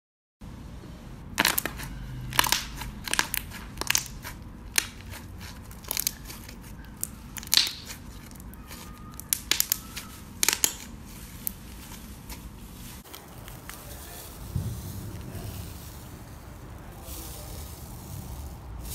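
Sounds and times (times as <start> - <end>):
slime crackling pops: 1.4 - 12.0.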